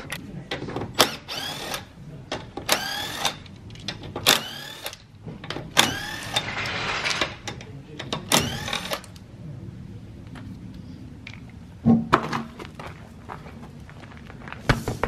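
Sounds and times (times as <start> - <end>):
impact wrench whirring: 2.8 - 3.4, 4.2 - 5.0, 5.8 - 7.0, 8.4 - 9.1.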